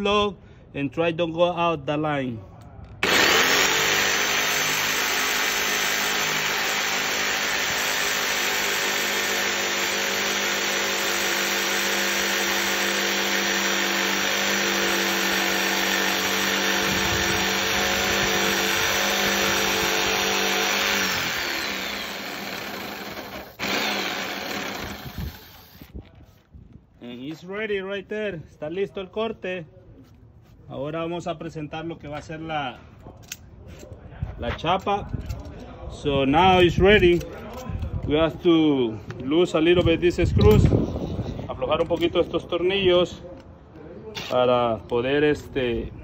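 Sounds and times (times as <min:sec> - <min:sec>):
jigsaw cutting wood: 0:03.0 - 0:25.9.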